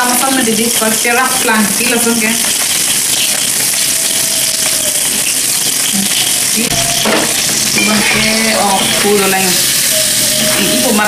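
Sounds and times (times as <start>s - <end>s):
food sizzling in a wok: 0.0s - 11.0s
metal spatula scraping wok: 6.7s - 11.0s.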